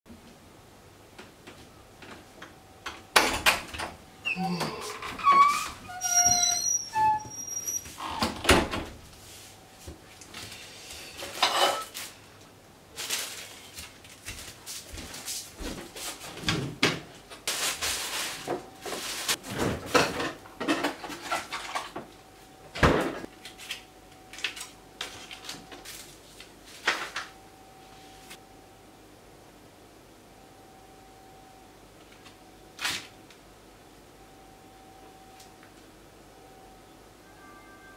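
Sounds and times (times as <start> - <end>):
faint steady tone: 27.2 - 32.8, 33.7 - 37.9.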